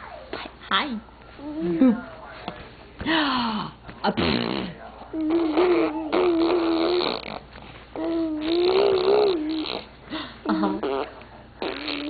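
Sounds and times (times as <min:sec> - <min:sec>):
baby blowing raspberries: 0:04.2 - 0:10.0, 0:10.7 - 0:12.0.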